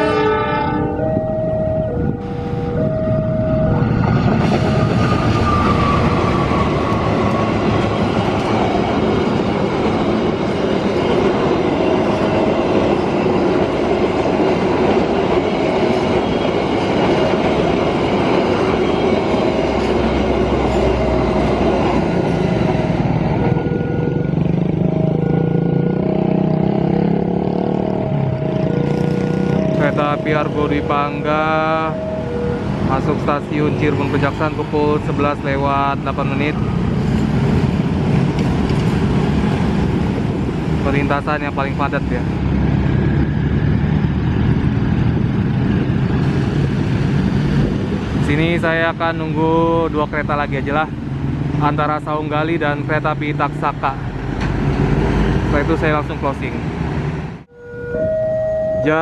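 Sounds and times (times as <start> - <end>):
two-note electronic beeping: 0.0 - 4.0, 27.9 - 33.2, 57.5 - 59.0
train wheels clattering on rails: 4.0 - 23.3, 36.0 - 40.8.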